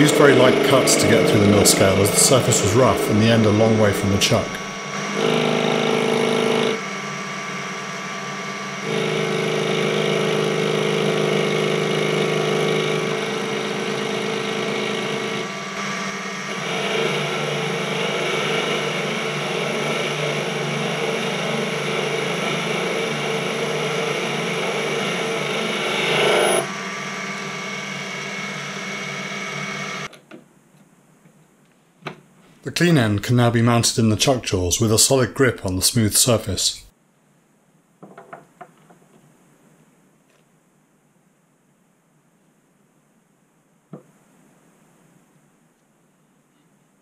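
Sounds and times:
lathe cutting steel: 0.0 - 30.1
lathe motor whine: 0.0 - 30.1.

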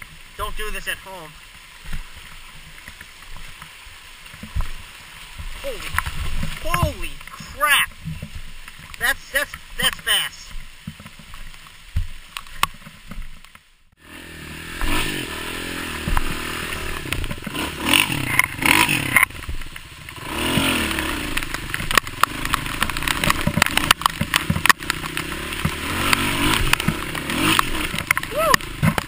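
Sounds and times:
dirt bike engine revving: 14.0 - 29.0
bike knocking and clattering: 16.0 - 29.0.

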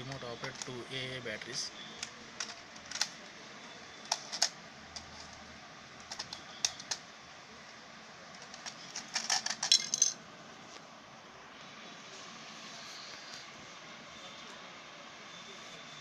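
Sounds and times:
plastic toy car clicks and clatter: 2.0 - 3.2, 4.0 - 5.4, 6.0 - 7.0, 8.3 - 10.2.

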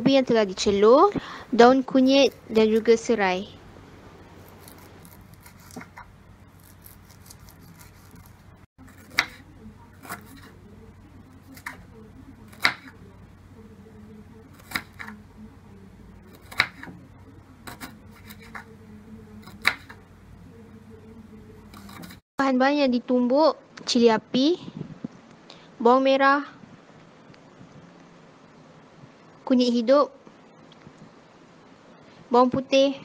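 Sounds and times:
knife chopping on wooden board: 9.0 - 9.4, 16.4 - 16.9.

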